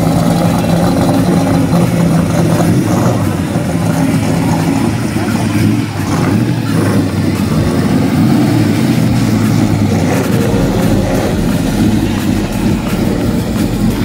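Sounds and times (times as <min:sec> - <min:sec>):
car engine running: 0:00.0 - 0:14.0.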